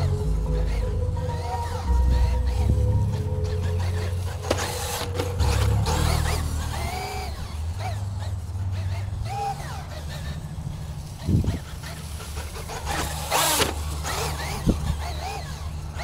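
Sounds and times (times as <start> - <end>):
electric motor whining: 0.0 - 16.0
wind rumble on microphone: 10.7 - 13.0, 14.1 - 16.0.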